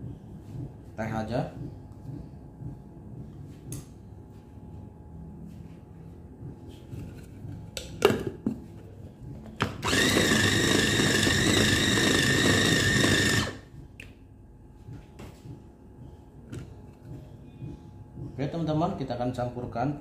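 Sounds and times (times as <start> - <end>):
mini chopper motor whine: 9.8 - 13.6.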